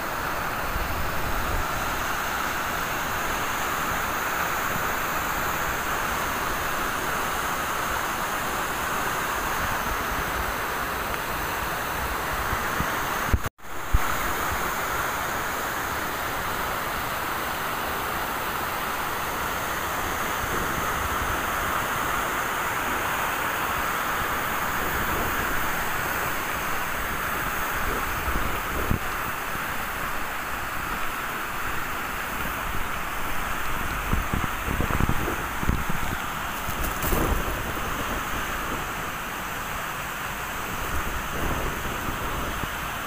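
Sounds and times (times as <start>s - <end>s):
waterfall rushing: 0.0s - 43.0s
wind gusts on microphone: 19.8s - 43.0s.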